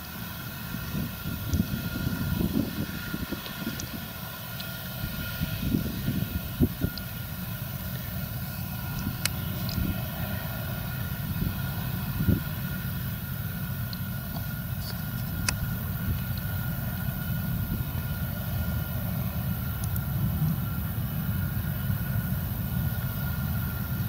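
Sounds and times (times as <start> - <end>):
combine harvester threshing drone: 0.0 - 24.0
steady high hum: 0.0 - 24.0
faint clicks: 19.7 - 20.1.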